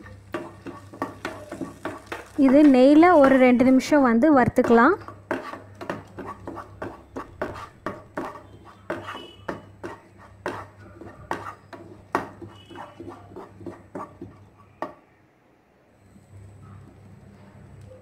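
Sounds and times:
wooden spatula scraping a pan: 0.0 - 4.0, 4.6 - 14.8.

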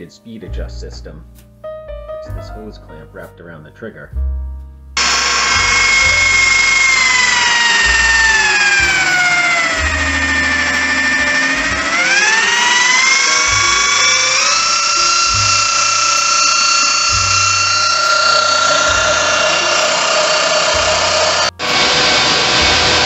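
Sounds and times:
electric drill motor whining: 5.0 - 23.0.

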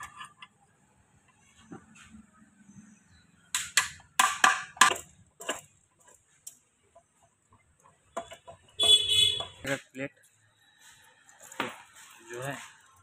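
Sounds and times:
metal clinks and knocks: 3.6 - 10.4.

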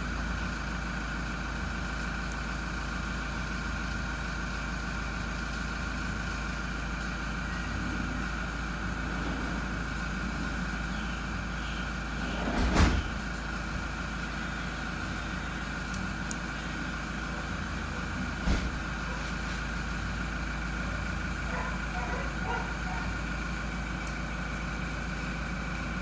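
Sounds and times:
mechanical hum: 0.0 - 26.0
dull thump: 18.4 - 18.8.

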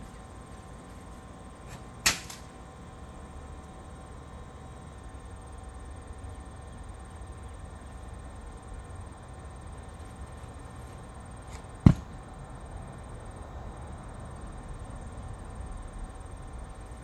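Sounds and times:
ball smacking: 11.5 - 12.2
goal rattle: 11.8 - 12.2.

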